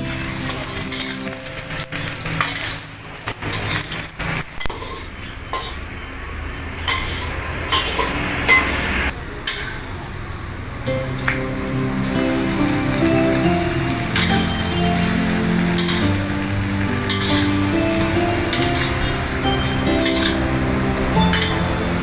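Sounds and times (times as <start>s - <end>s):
background music: 0.0s - 2.5s, 10.9s - 22.0s
food sizzling in hot oil: 0.0s - 5.8s, 10.8s - 22.0s.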